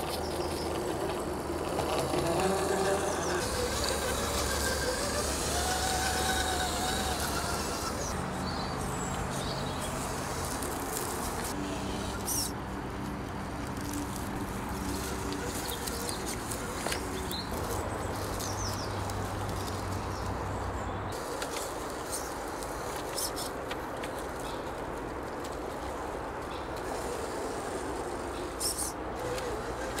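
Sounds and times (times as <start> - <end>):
birds chirping: 0.0 - 12.6, 13.7 - 24.8
electric motor and gears humming: 0.0 - 30.0.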